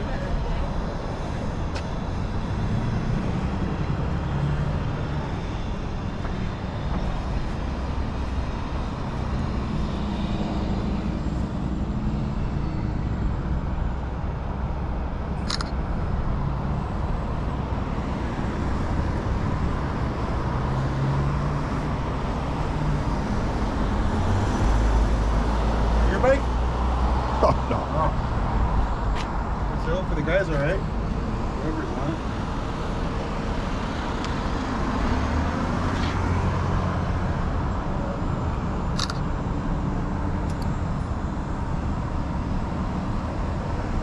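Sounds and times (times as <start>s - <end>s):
cars driving past: 0.9s - 44.0s.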